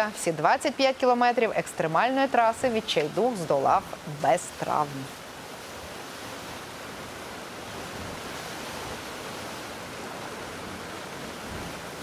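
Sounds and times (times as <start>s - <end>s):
river whitewater rushing: 0.0s - 12.0s.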